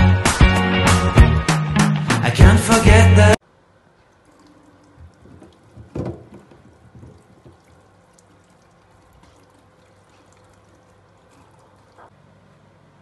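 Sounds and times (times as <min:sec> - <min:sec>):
faint water trickle: 0:03.5 - 0:12.1
tap water running and splashing: 0:03.9 - 0:12.1
soft knocks: 0:05.3 - 0:07.6.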